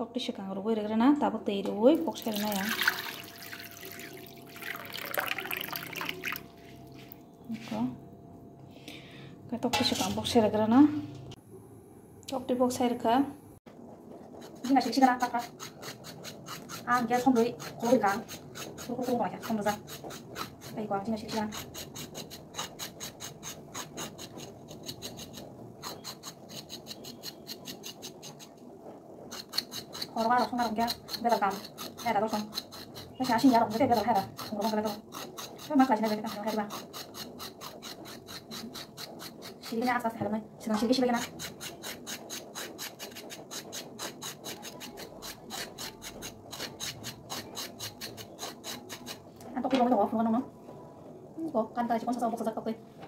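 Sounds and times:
knife slicing vegetable: 14.4 - 28.5, 29.3 - 49.2.

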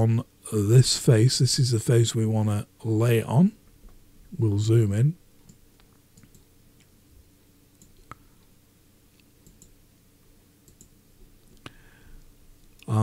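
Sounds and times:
low room hum: 0.0 - 13.0
computer mouse clicks: 5.4 - 6.5, 7.8 - 8.2, 9.2 - 9.8, 10.6 - 10.9.

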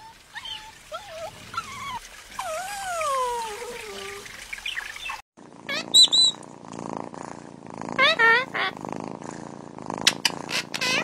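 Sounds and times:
dog whining howl: 0.0 - 4.2
cat purring: 5.4 - 11.0.

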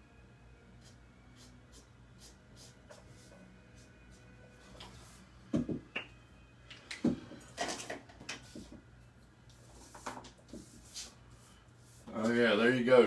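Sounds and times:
dull thumps on desk: 5.5 - 5.9.

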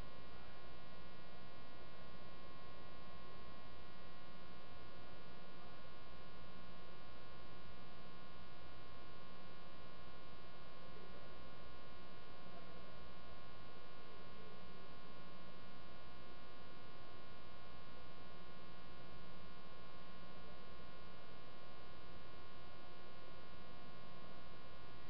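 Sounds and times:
electrical mains hum: 0.0 - 25.0.

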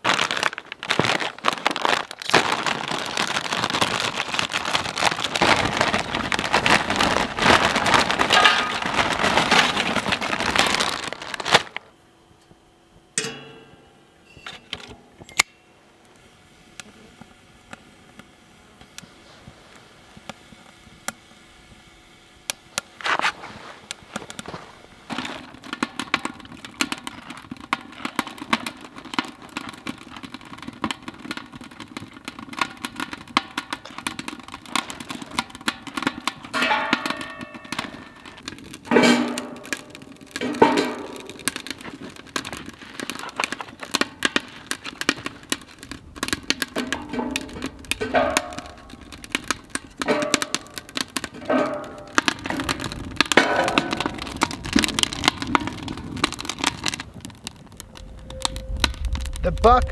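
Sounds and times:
bag rustling: 0.0 - 11.9
chips crunching in foil bag: 0.0 - 11.9, 24.4 - 30.2, 33.7 - 59.9
burning chips crackling: 0.0 - 59.9.

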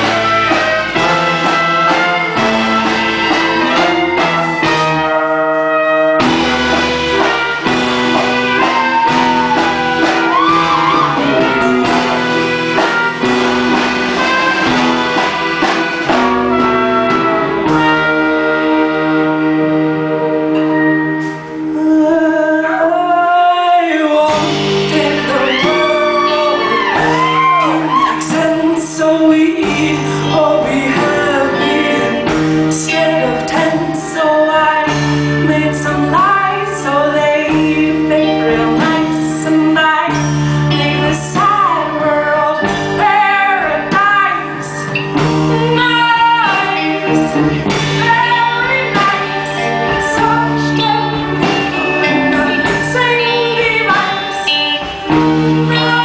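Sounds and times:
drums with steady beat: 0.0 - 19.4, 24.2 - 56.0
electric guitar: 0.0 - 56.0
woman singing with vibrato: 6.6 - 13.4, 21.7 - 56.0.

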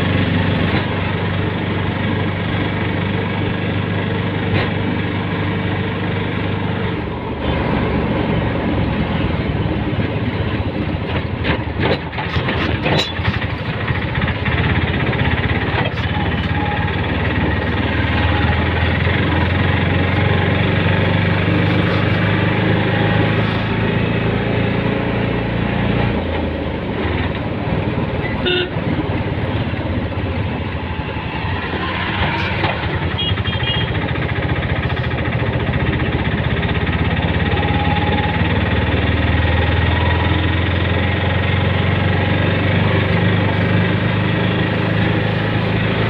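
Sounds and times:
road and wind noise: 0.0 - 46.0
small engine running: 12.3 - 25.7, 31.4 - 46.0
short horn beep: 28.4 - 28.8, 33.1 - 34.0.

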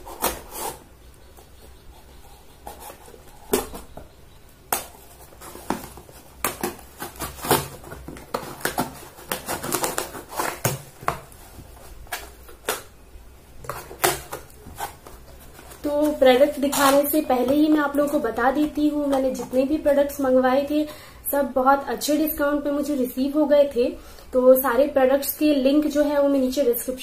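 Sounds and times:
packaging scraping and tearing: 0.0 - 0.9, 4.8 - 12.9, 13.6 - 19.6.

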